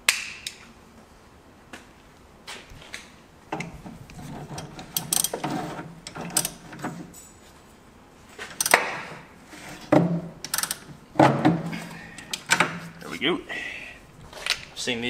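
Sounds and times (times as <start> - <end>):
hand ratchet clicking: 4.6 - 5.4, 6.1 - 6.6, 8.6 - 9.0, 10.4 - 10.9.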